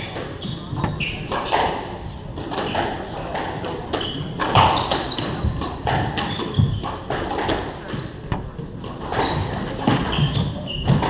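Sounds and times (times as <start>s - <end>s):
shoe squeaks on floorboards: 0.0s - 7.1s, 7.9s - 8.4s, 9.0s - 11.0s
squash ball hits ringing: 2.5s - 11.0s.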